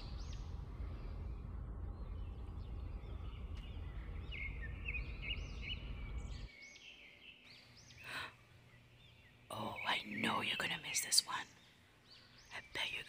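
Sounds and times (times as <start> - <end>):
low rumble on microphone: 0.0 - 6.5
small birds chirping: 0.0 - 13.0.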